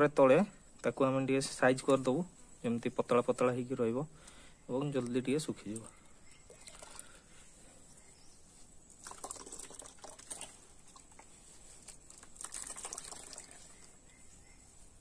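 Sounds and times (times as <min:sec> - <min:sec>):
wet squelching: 0:08.9 - 0:14.0.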